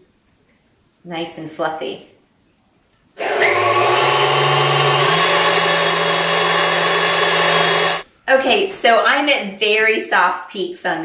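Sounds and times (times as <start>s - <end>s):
stand mixer motor whipping cream: 3.2s - 8.0s.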